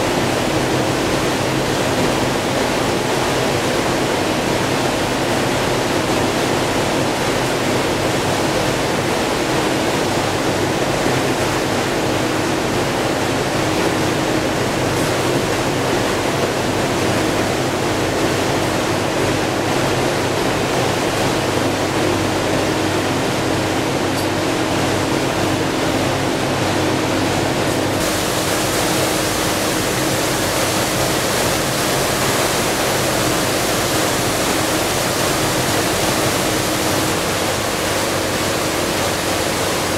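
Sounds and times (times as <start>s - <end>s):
rush of water and air: 0.0s - 39.9s
boat engine hum: 9.2s - 39.9s.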